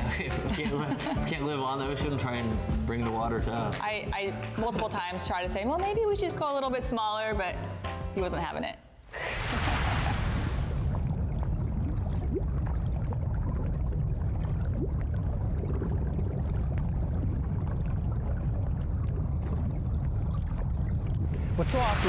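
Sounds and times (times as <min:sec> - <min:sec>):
water splash: 0:09.2 - 0:13.7, 0:20.5 - 0:22.0
faint bubbling: 0:09.2 - 0:22.0
muffled underwater rumble: 0:10.7 - 0:22.0.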